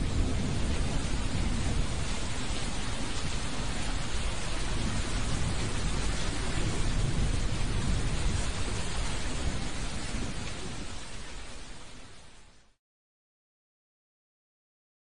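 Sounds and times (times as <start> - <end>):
rolling thunder rumble: 0.0 - 11.7
heavy rain hiss: 0.0 - 12.8.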